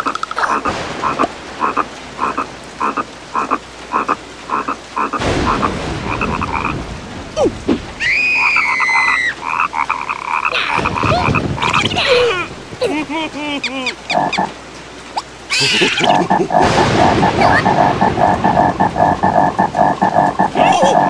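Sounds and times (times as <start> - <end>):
cartoon frog croaking: 0.0 - 6.8, 8.5 - 12.4, 13.6 - 14.6, 15.2 - 21.0
rain hissing: 0.0 - 21.0.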